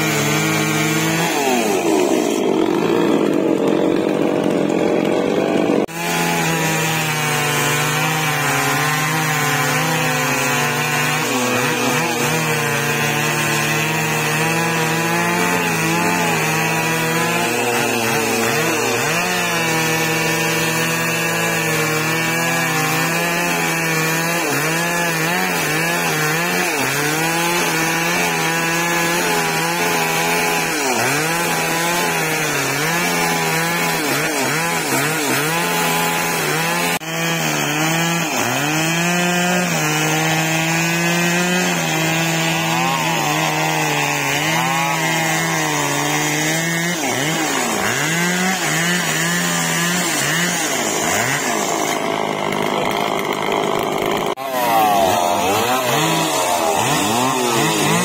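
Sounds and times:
chainsaw cutting tree trunk: 0.0 - 58.0.

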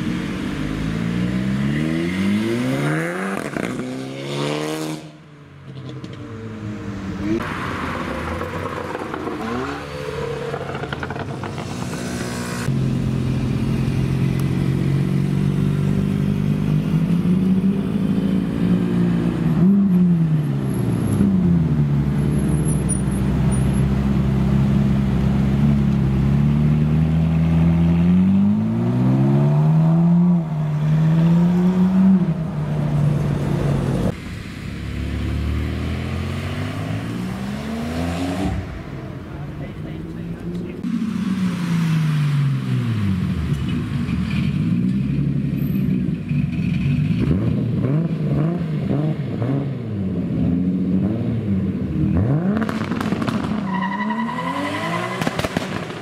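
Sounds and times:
traffic noise: 0.0 - 56.0
sports car engine revving: 47.0 - 56.0.

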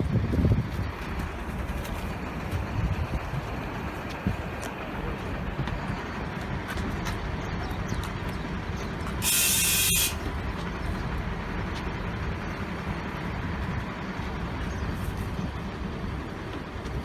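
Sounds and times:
bus engine idling: 0.0 - 17.0
compressed air hiss: 9.2 - 10.2.

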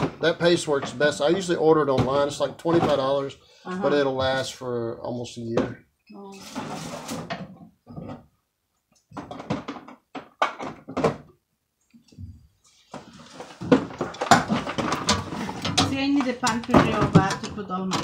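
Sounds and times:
knocks and scraping: 0.0 - 5.8, 6.4 - 11.4, 12.0 - 18.0.

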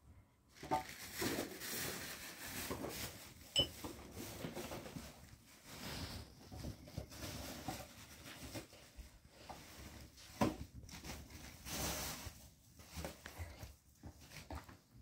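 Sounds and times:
plastic bag rustling: 0.5 - 15.0.

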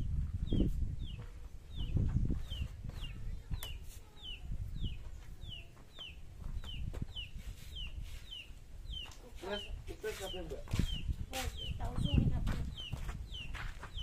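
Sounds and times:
chick peeping: 0.5 - 14.0.

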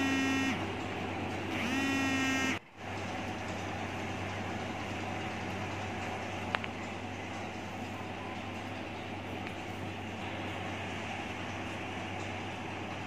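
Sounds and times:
horn-like tone: 0.0 - 0.6, 1.6 - 2.6.

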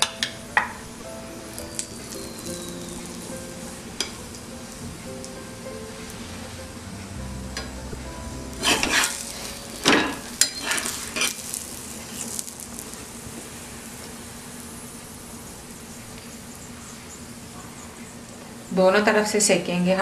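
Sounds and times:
ghee sizzling on a hot pan: 0.0 - 19.4
metal spatula scraping: 8.6 - 12.5.

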